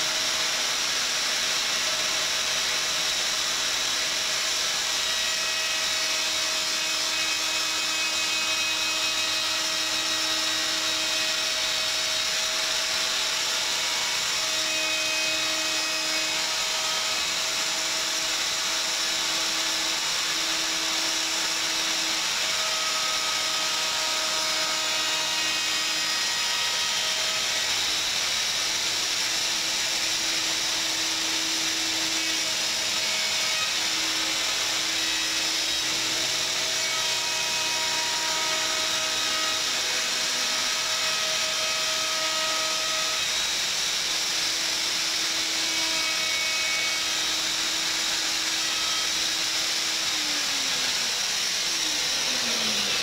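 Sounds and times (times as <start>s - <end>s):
router cutting wood: 0.0s - 53.0s.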